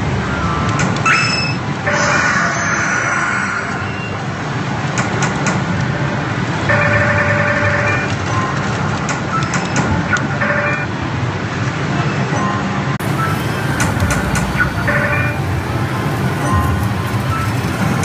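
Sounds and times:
din of many gaming machines: 0.0 - 18.0
electronic tones: 12.5 - 18.0
sharp machine clicks: 13.0 - 15.4.

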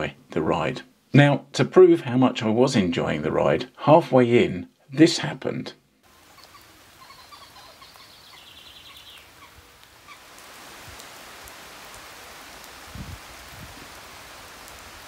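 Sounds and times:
heavy rain on foliage and road: 6.1 - 15.0
faint bird call: 6.2 - 10.3.

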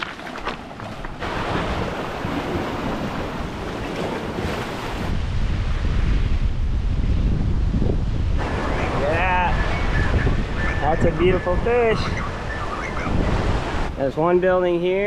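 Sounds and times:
surf washing against rocks: 0.0 - 6.3, 8.4 - 12.0
wind buffeting microphone: 0.8 - 14.3.

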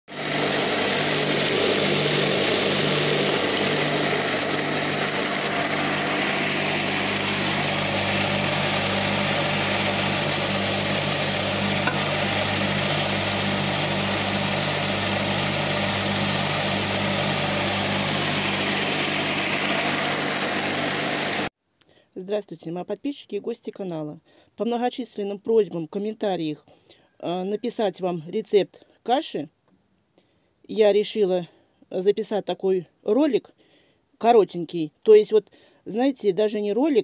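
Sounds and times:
grain being milled: 0.1 - 21.5
motor hum: 0.1 - 21.5.

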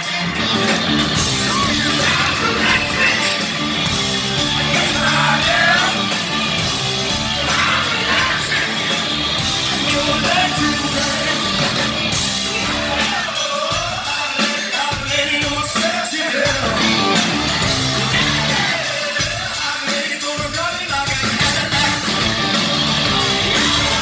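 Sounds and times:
hard rock band playing: 0.0 - 24.0
man singing: 1.4 - 3.6, 4.4 - 6.2, 7.3 - 17.1, 18.0 - 22.2.

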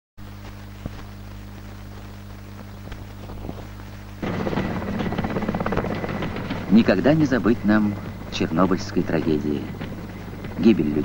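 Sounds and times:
low hum: 0.2 - 11.0
loud dense sound: 3.9 - 11.0.

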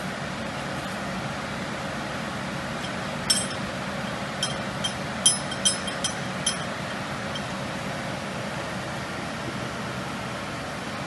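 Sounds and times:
steady hum: 0.0 - 11.0
metal spanner clinking on valve: 2.8 - 7.5.

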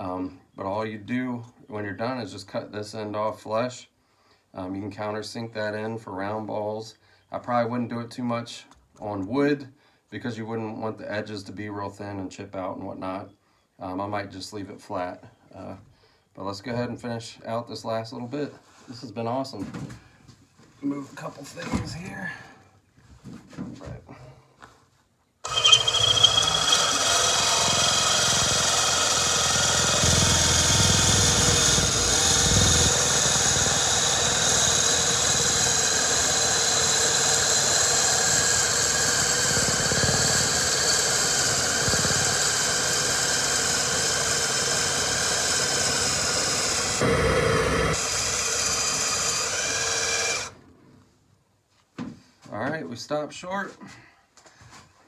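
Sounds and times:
cordless drill whining: 25.4 - 50.6.

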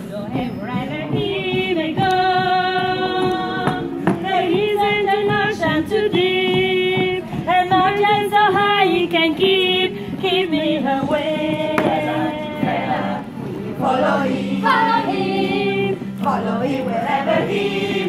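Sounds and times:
choir singing long notes: 11.3 - 18.0.

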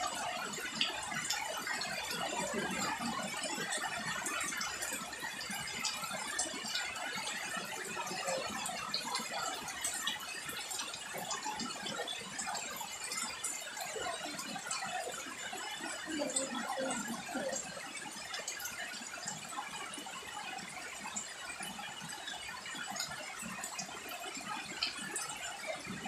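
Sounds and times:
rain on foliage: 0.0 - 20.6.

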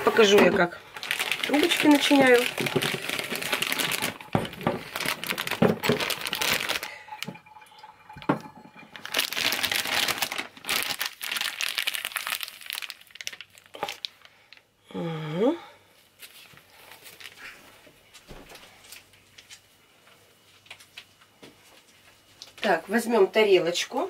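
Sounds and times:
plastic bag crinkling: 0.0 - 14.6, 16.4 - 17.5.

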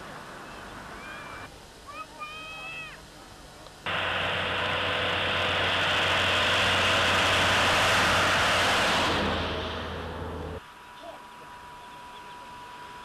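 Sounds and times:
minibus driving past: 3.9 - 10.9.

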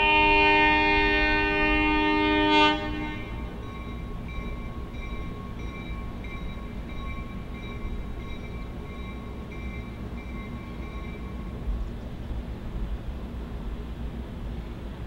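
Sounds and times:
locomotive horn chord: 0.0 - 3.8
bell ringing steadily: 3.4 - 11.6.

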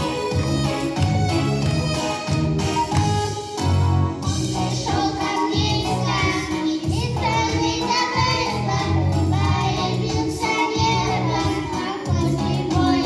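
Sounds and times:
recorded backing track with bass: 0.0 - 13.0
girls singing into microphones: 4.6 - 13.0.

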